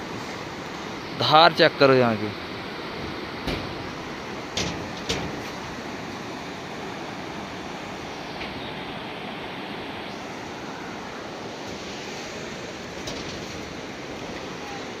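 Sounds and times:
whitewater rushing over rocks: 0:05.4 - 0:15.0.

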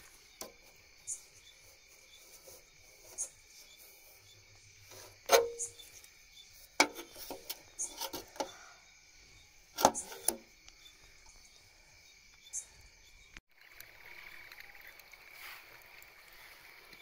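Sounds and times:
night insects chirring: 0:00.0 - 0:17.0
metal box knocks and rattles: 0:06.8 - 0:07.6
small metal taps: 0:06.8 - 0:08.5.

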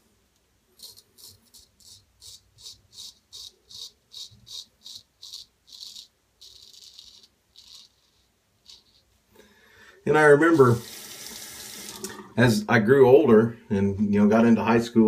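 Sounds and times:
razor scraping whiskers: 0:00.8 - 0:09.2.

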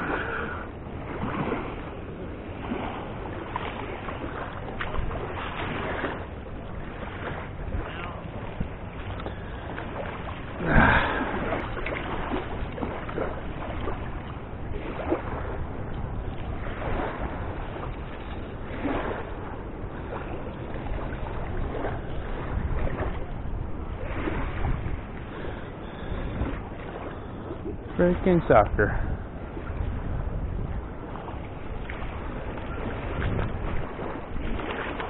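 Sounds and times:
wind rumbling on microphone: 0:00.0 - 0:35.0.

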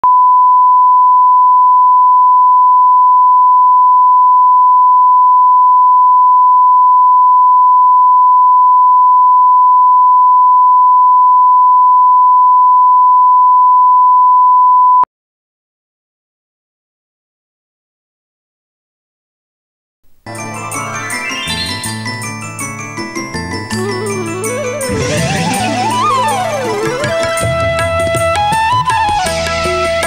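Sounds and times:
steady sine test tone: 0:00.0 - 0:15.0.

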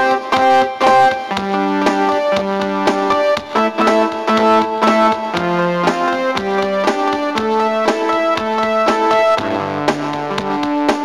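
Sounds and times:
instrumental music with chords and beat: 0:00.0 - 0:11.0.

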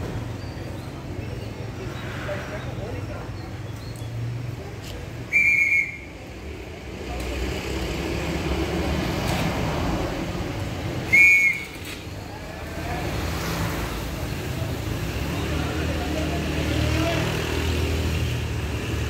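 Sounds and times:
high-pitched whistle blasts: 0:05.3 - 0:06.1, 0:11.1 - 0:11.8.

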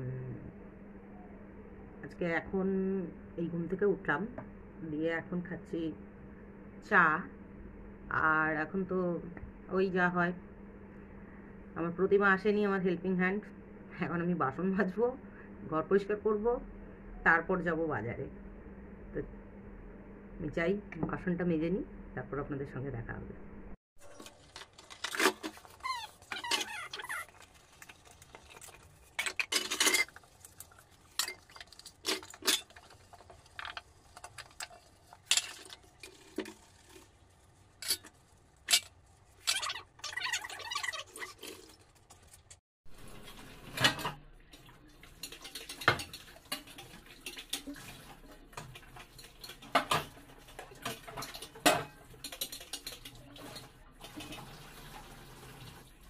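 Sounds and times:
dishes clinking and clattering: 0:28.5 - 0:30.3, 0:31.1 - 0:36.5, 0:45.0 - 0:54.6.

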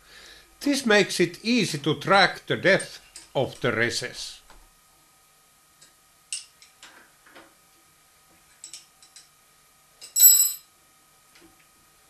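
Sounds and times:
ringing metal clink: 0:10.1 - 0:10.6.

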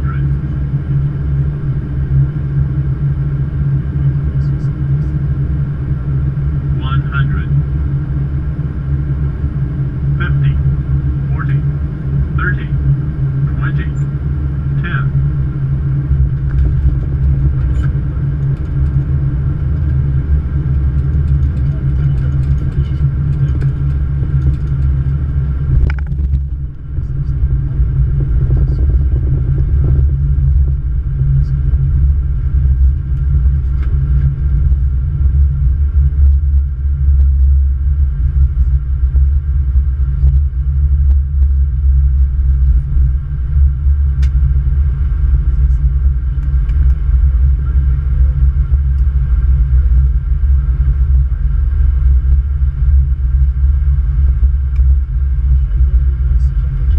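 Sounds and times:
airliner cockpit low rumble: 0:00.0 - 0:56.9.

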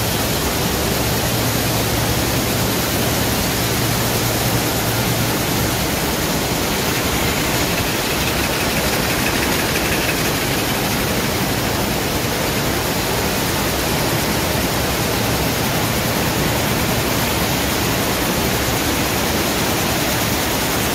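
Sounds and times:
weaving looms mechanical din: 0:03.4 - 0:13.6.

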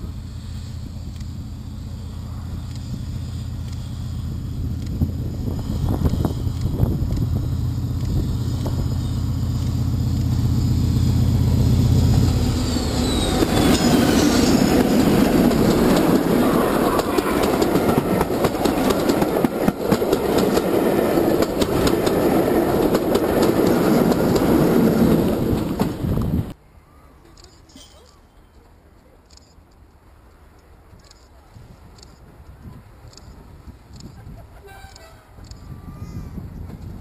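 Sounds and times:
diesel locomotive engine droning: 0:00.0 - 0:27.0
train wheels clickety-clack: 0:11.9 - 0:26.4.

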